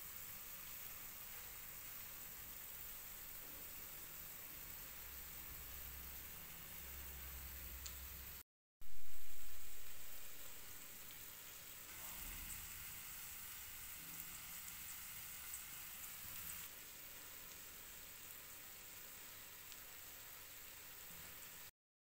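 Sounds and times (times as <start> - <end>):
onions sizzling in hot fat: 0.0 - 21.7
small crackles: 19.6 - 20.0.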